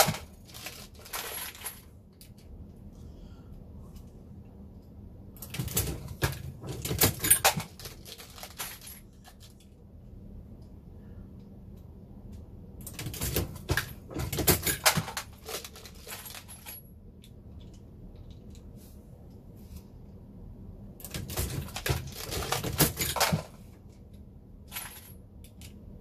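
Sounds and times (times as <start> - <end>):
reloading press clicking and clattering: 5.4 - 9.0, 12.8 - 16.7, 21.0 - 23.6.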